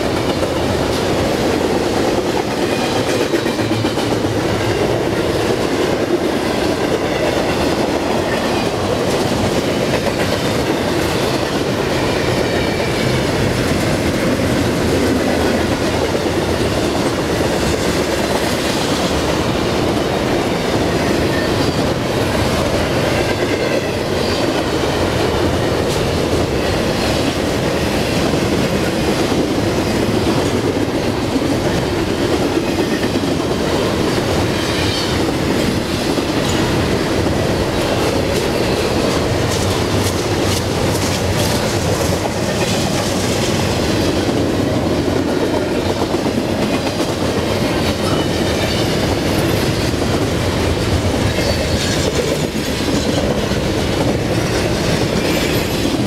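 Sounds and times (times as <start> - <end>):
train wheels rumbling on rails: 0.0 - 56.0.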